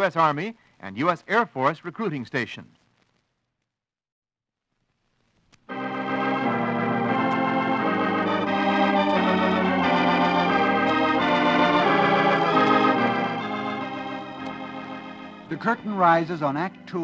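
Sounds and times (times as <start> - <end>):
organ playing sustained chords: 5.7 - 17.0.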